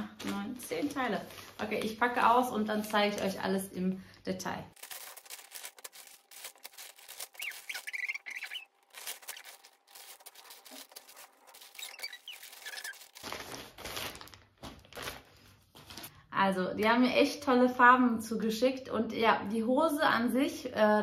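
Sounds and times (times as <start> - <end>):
plastic bags rustling and crinkling: 0.0 - 3.6, 4.7 - 16.1.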